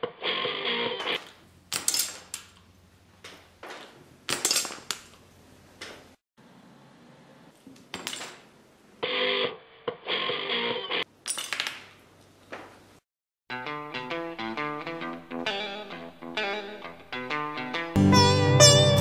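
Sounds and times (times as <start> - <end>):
plastic figures clicking and clattering: 3.2 - 5.2
guitar music: 13.5 - 19.0.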